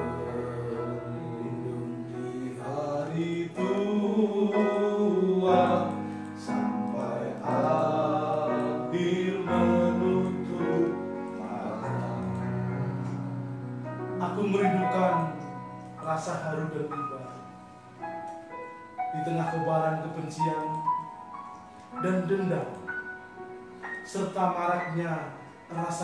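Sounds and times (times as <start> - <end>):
person singing: 0.0 - 13.6
keyboard accompaniment: 0.0 - 26.0.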